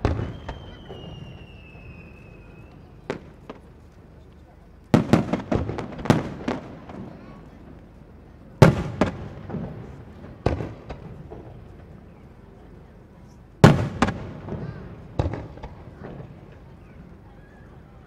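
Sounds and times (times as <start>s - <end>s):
firework shells booming: 0.0s - 2.4s, 4.9s - 7.5s, 8.6s - 12.0s, 13.6s - 17.1s
firework crack: 0.0s - 18.0s.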